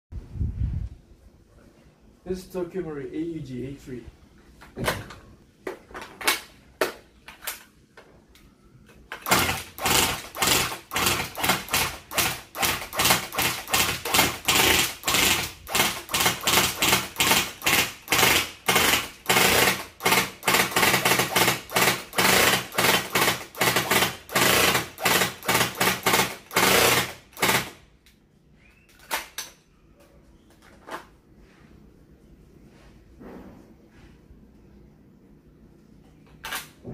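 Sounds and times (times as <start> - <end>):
airsoft rifle rapid fire: 9.2 - 27.8.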